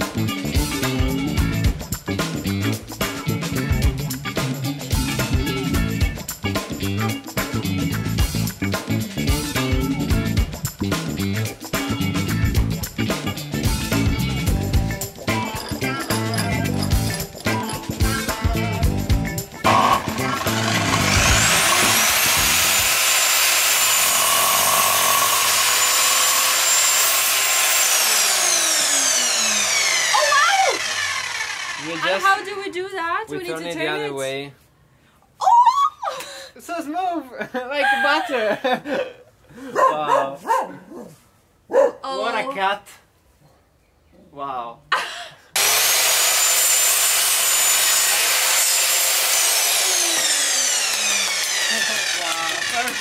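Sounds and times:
mitre saw cutting wood: 14.9 - 32.6, 45.6 - 53.0
saw blade spinning down: 15.2 - 18.9, 19.6 - 32.5, 45.6 - 53.0.

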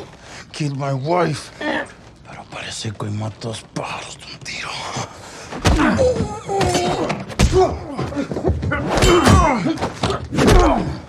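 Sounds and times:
men grunting and shouting: 5.5 - 11.0
punches and thuds: 5.5 - 11.0.

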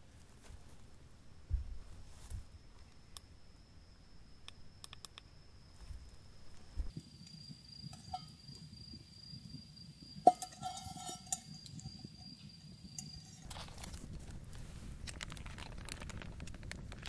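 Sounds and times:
high insect trill: 2.4 - 13.8
metal object clinking and ringing: 10.2 - 12.4
rustling and handling noises: 13.0 - 17.0.

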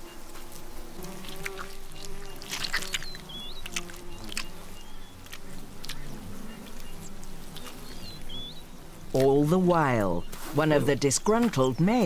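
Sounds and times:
bees buzzing: 0.0 - 12.0
baboon chewing and smacking: 1.0 - 6.8
small bird chirping: 1.0 - 9.4.

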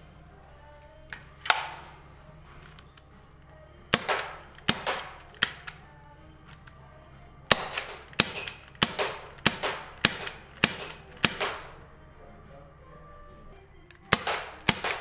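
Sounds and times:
airsoft pistol pops: 1.2 - 1.9, 3.9 - 5.8, 7.5 - 11.7, 13.9 - 15.0.

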